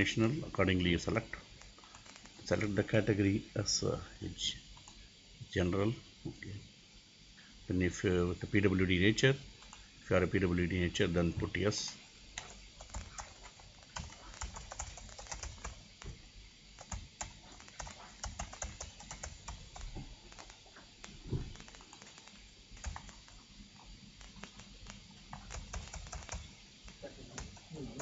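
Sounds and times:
computer keyboard typing: 0:01.8 - 0:02.7, 0:09.6 - 0:09.8, 0:12.4 - 0:16.1, 0:16.8 - 0:23.5, 0:24.2 - 0:26.6, 0:27.3 - 0:28.0.

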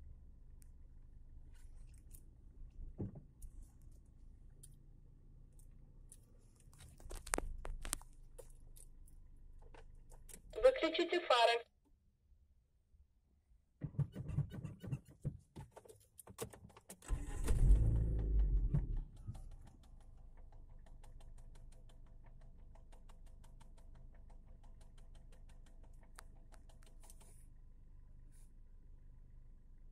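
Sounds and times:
clicks and knocks in car cabin: 0:13.8 - 0:17.1, 0:17.8 - 0:27.4
car engine starting: 0:16.4 - 0:27.4.

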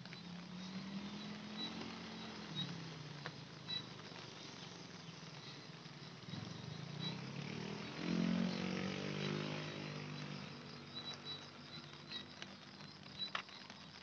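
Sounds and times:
vehicle engine passing: 0:06.2 - 0:12.5.

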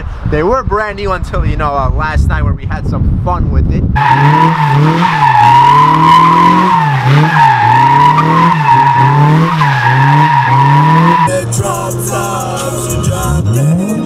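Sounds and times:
tires squealing: 0:04.0 - 0:11.4
car engine revving: 0:04.0 - 0:14.0.

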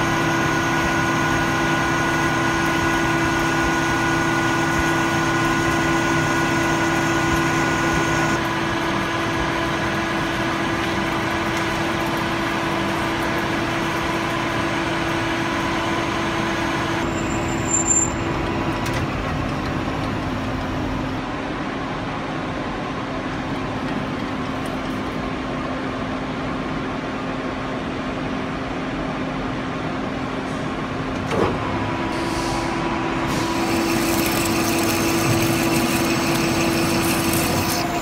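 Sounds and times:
metal lathe humming: 0:00.0 - 0:17.1, 0:33.3 - 0:38.0.

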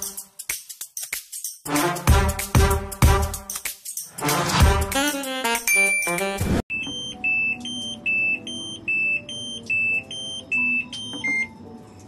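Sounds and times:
music: 0:00.0 - 0:12.0
washing machine beeping: 0:05.7 - 0:11.8.

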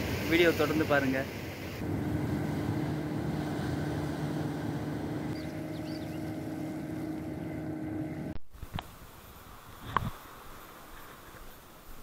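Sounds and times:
wind and water: 0:00.0 - 0:12.0
low engine drone: 0:01.8 - 0:08.4.

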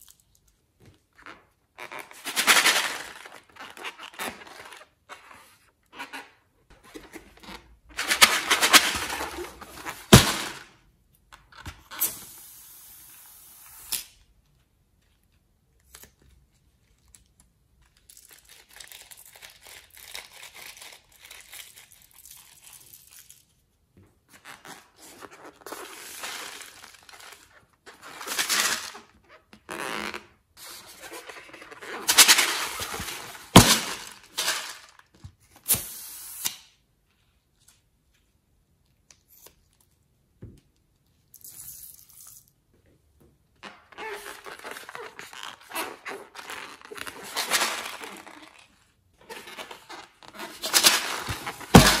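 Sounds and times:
slime squeezed from balloon: 0:11.8 - 0:14.2, 0:35.6 - 0:36.8
rubbery rubbing of slime balloons: 0:43.9 - 0:52.0.

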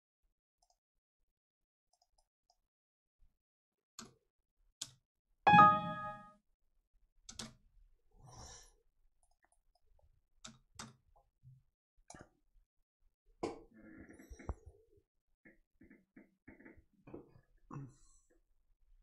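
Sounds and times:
electronic alert chime: 0:05.5 - 0:06.2.

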